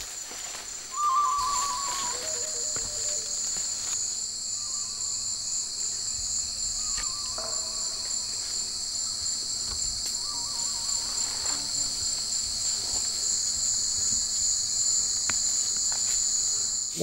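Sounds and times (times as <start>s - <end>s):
insects buzzing and trilling: 0.0s - 17.0s
faint wavering animal call: 0.9s - 6.1s, 6.7s - 12.1s.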